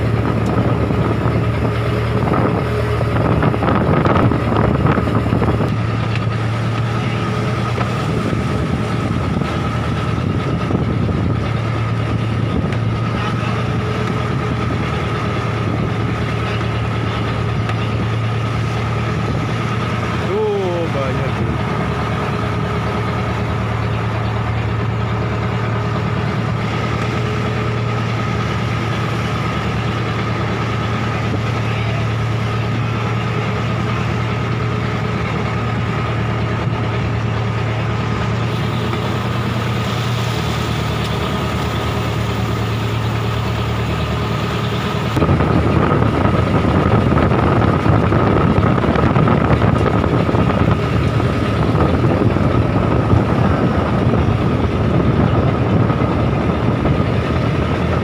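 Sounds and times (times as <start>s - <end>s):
boat engine running: 0.0s - 58.0s
waves against hull: 0.0s - 58.0s
wind: 0.0s - 58.0s
water splashing at bow: 21.3s - 48.0s.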